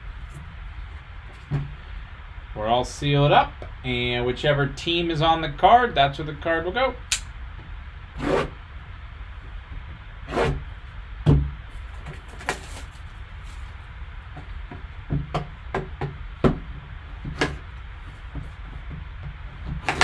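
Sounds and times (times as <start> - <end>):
plastic wrap rustling: 11.7 - 13.9.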